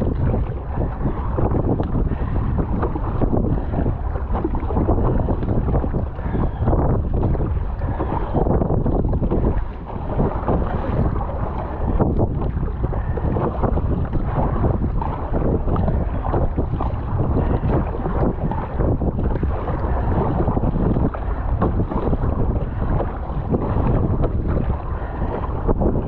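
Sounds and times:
water splashing against hull and paddle: 0.0 - 26.0
wind buffeting microphone: 0.0 - 26.0.

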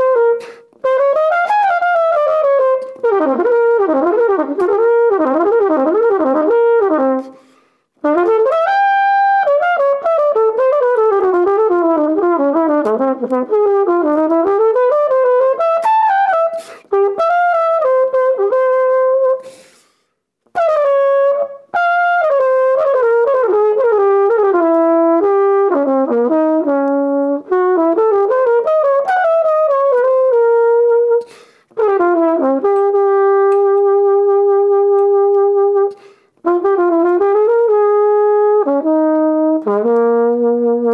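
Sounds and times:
solo flugelhorn jazz phrases: 0.0 - 40.9.

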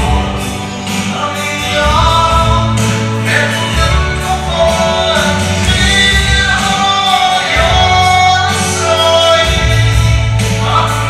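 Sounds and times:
instrumental accompaniment: 0.0 - 11.0
man singing gospel song: 0.0 - 11.0.

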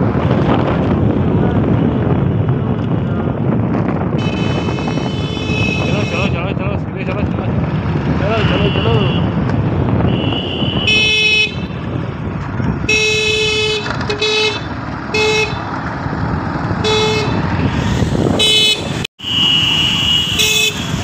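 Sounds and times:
wind on microphone: 0.0 - 19.1
motorcycle engine rumble: 0.0 - 21.0
vehicle horn honking: 4.2 - 6.4, 8.4 - 9.3, 10.0 - 11.8, 12.8 - 15.7, 16.8 - 17.5, 18.4 - 21.0.

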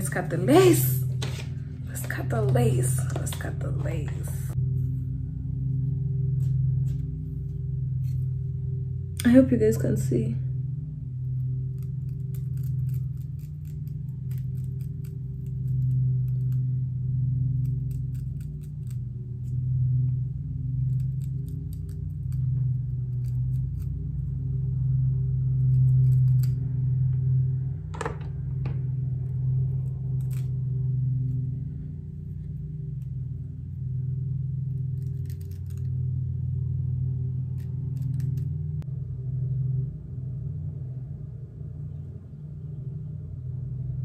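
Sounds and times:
steady low hum: 0.0 - 44.0
scissors snipping: 35.0 - 36.0, 37.5 - 38.6.

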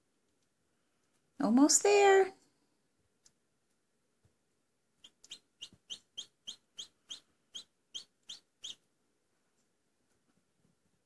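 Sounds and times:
chick peeping: 5.0 - 8.9.

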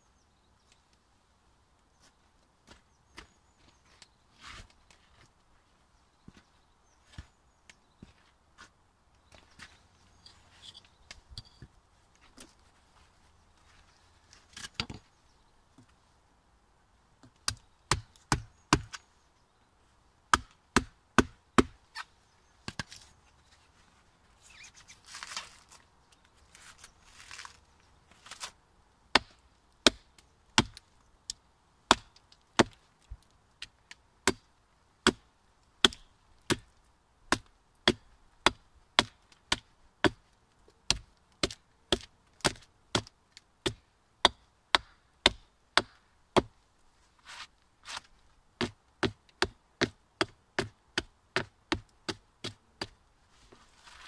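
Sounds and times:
axe chopping log: 17.5 - 19.0, 20.3 - 21.8, 29.2 - 30.8, 31.9 - 32.8, 34.2 - 34.4, 35.0 - 35.2, 35.8 - 36.7, 37.3 - 40.2, 40.9 - 46.5.

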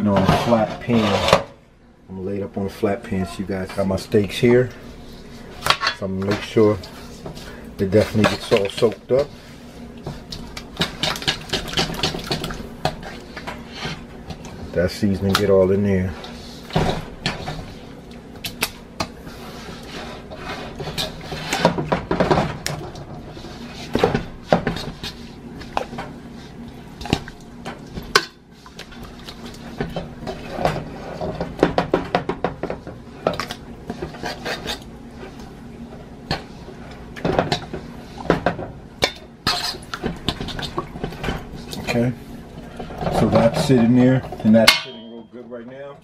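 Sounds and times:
fork scraping metal bowl: 0.1 - 1.4.

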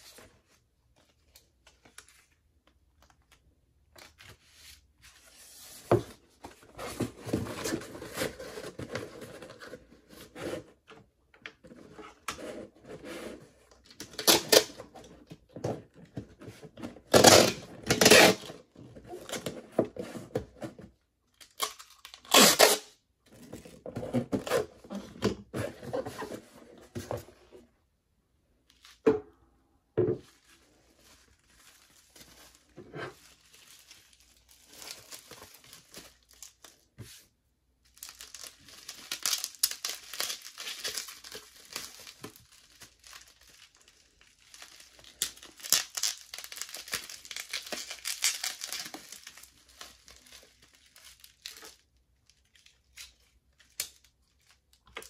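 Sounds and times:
bubble wrap crinkling: 30.3 - 37.2, 37.8 - 55.0.

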